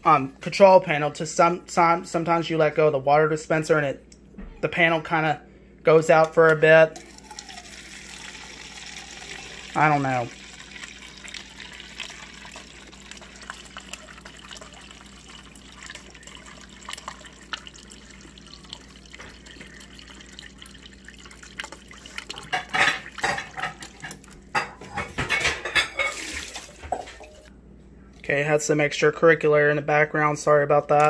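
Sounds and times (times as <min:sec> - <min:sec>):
water sputtering into cup: 0:07.0 - 0:24.2.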